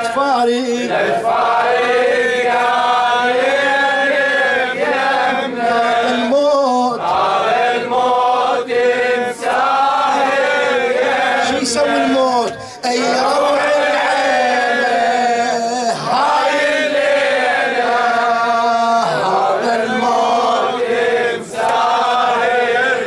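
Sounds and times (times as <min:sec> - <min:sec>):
men chanting a mourning lament: 0:00.0 - 0:23.0.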